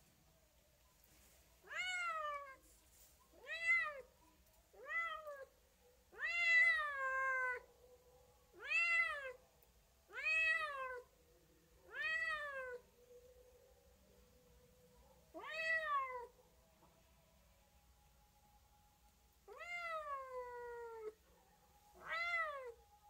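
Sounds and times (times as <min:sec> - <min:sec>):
cat meowing: 0:01.7 - 0:02.6, 0:03.4 - 0:04.1, 0:04.8 - 0:05.5, 0:06.1 - 0:07.6, 0:08.6 - 0:09.4, 0:10.1 - 0:11.1, 0:11.9 - 0:12.8, 0:15.4 - 0:16.3, 0:19.5 - 0:21.2, 0:22.0 - 0:22.8.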